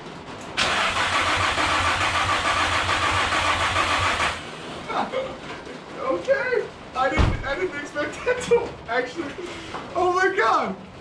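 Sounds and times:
engine starter cranking: 0.6 - 4.4.

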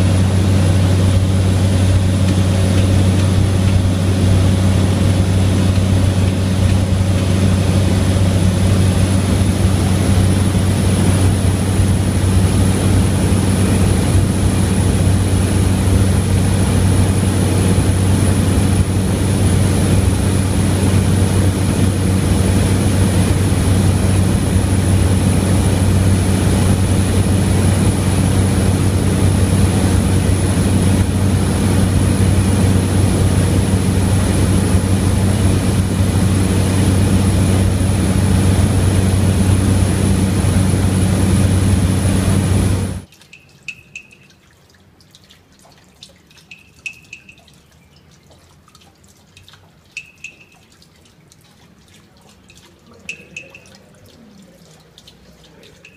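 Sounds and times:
propeller airplane engine in flight: 0.0 - 43.1.

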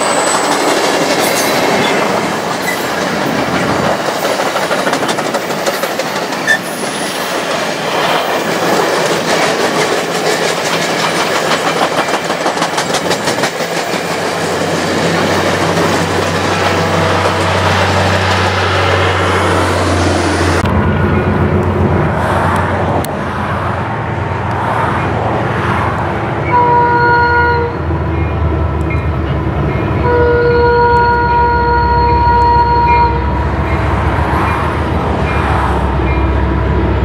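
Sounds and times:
diesel locomotives rumbling: 0.0 - 37.0
train cars rolling with rail clatter: 0.0 - 37.0
locomotive horn blasts: 26.5 - 27.8, 30.0 - 33.4.

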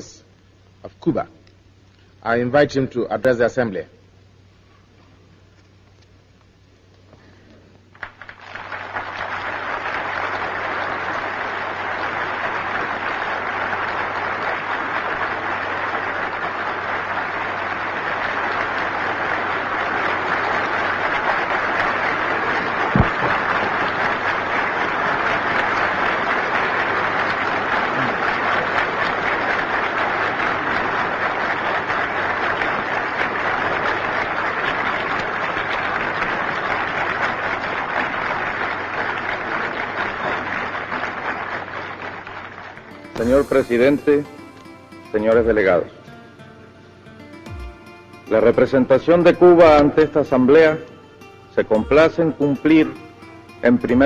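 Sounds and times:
audience applauding: 7.9 - 54.0
sharp knock: 23.0 - 23.4.

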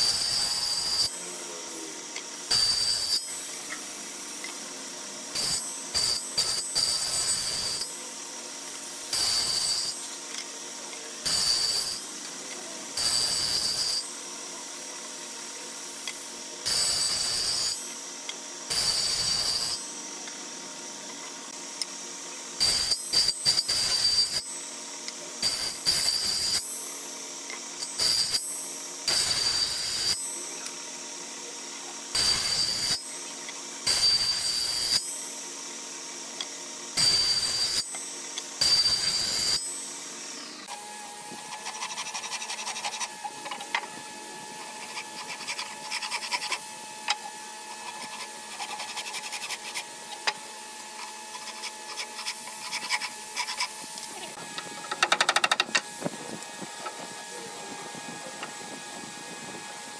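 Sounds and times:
circular saw blade running: 0.0 - 59.9
saw rasping cuts into wood: 41.4 - 43.8, 44.6 - 50.4, 51.0 - 54.0.

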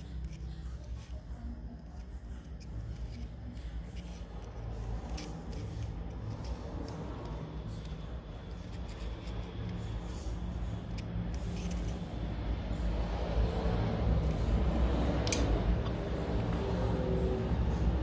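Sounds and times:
metal tools scratching and clicking: 0.0 - 12.2, 15.2 - 15.9
steady low hum: 0.0 - 18.0.

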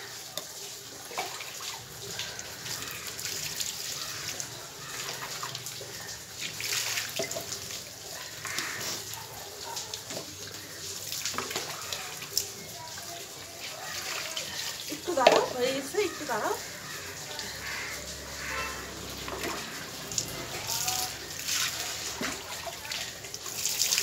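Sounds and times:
water splashing on ground: 0.0 - 24.0
water poured from mug: 16.8 - 24.0.

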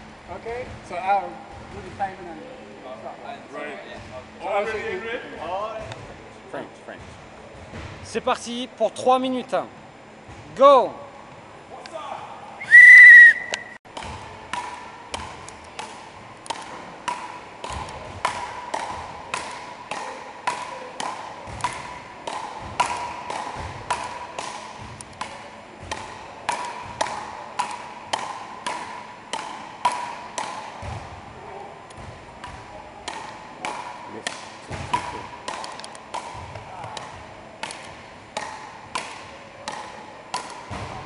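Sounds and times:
loud whistle blast: 12.6 - 13.8
paddles striking ball: 31.9 - 41.0.

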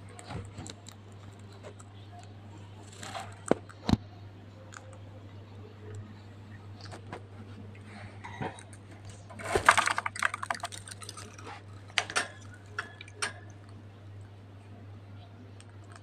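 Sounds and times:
steady low hum: 0.0 - 16.0
cage clicks and rattles: 8.3 - 13.8.

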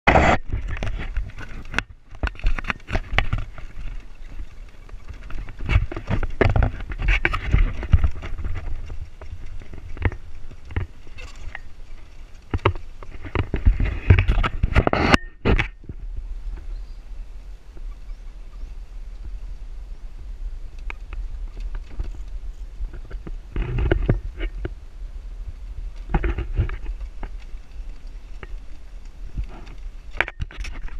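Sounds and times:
wooden cart rattling and knocking: 0.4 - 14.9.

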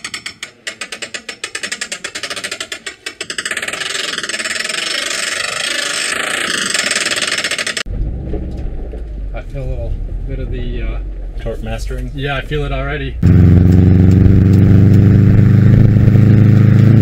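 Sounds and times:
differential locker ratcheting clicks: 0.0 - 4.5.

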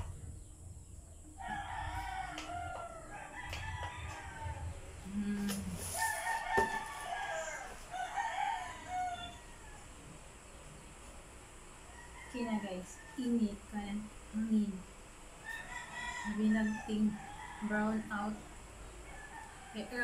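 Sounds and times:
rooster crowing: 1.4 - 5.2, 5.9 - 10.2, 11.9 - 13.4, 15.4 - 20.0.

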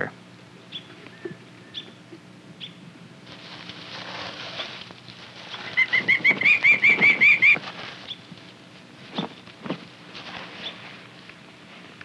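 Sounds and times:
rustling: 3.2 - 12.0
falcon harsh kek calls: 5.6 - 7.6.

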